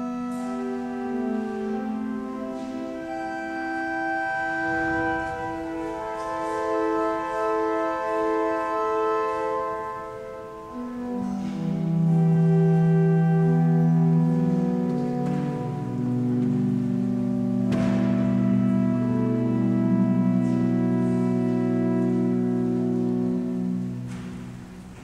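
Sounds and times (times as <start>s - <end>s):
classical instrumental ensemble: 0.0s - 25.0s
deep bass notes: 10.8s - 25.0s.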